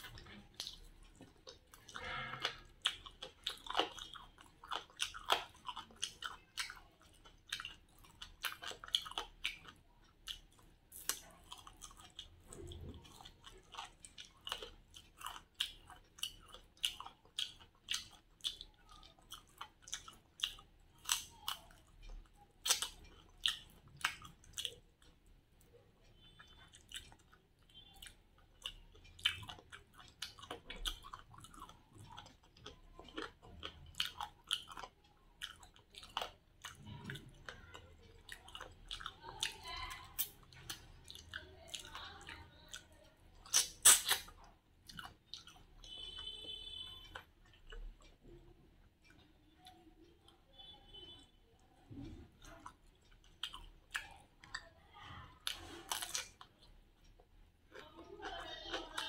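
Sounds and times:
person chewing food: 0.0 - 59.0
wet mouth clicks and smacks: 22.6 - 25.2, 40.2 - 42.0, 43.4 - 48.1.

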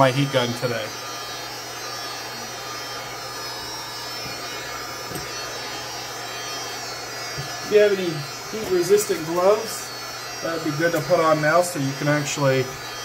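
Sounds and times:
heat gun blowing air: 0.0 - 13.0.

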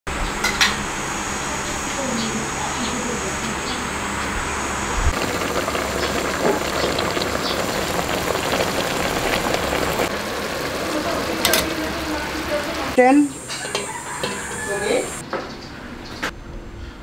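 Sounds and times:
pot bubbling and hissing: 5.1 - 15.2.

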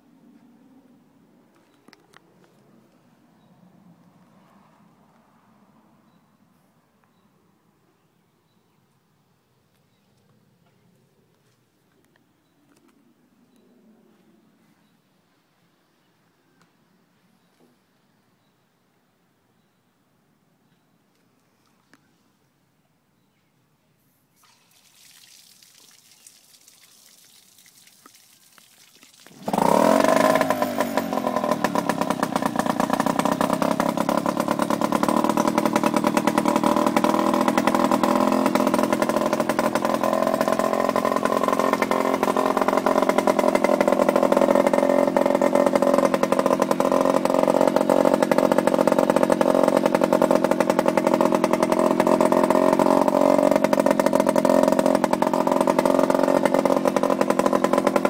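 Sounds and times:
outboard motor running: 24.3 - 58.0.

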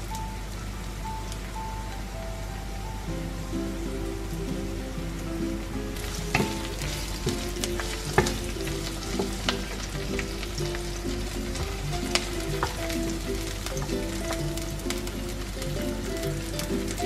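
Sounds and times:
wooden spatula knocking on pan: 6.0 - 15.0
food sizzling in hot oil: 6.0 - 17.0.

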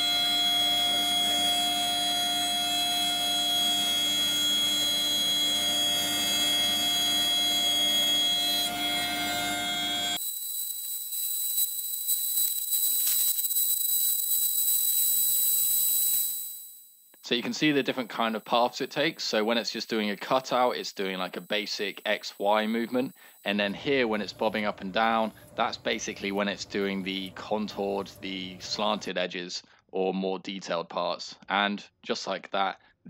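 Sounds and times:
cnc router whining: 0.0 - 10.2.

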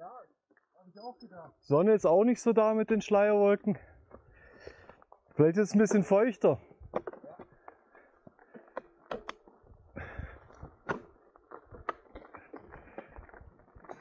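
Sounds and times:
bike clicks and knocks: 6.8 - 14.0
tyres crunching over gravel: 7.3 - 14.0.

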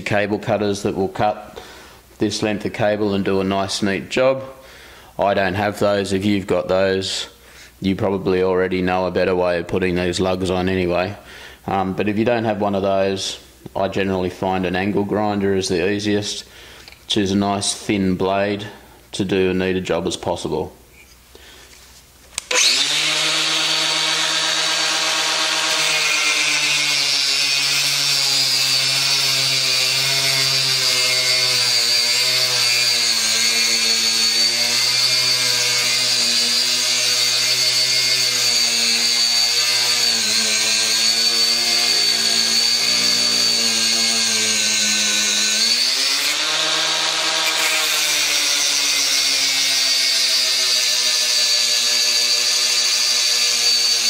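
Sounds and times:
angle grinder cutting cable: 22.4 - 54.0.

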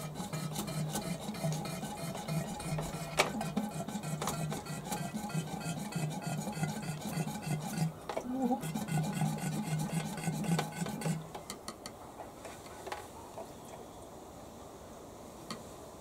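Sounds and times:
hand siphon pump strokes: 0.0 - 11.3.

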